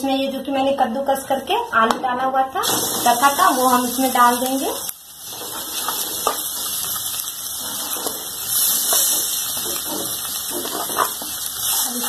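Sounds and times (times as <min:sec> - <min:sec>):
oil sizzling: 0:02.5 - 0:12.0.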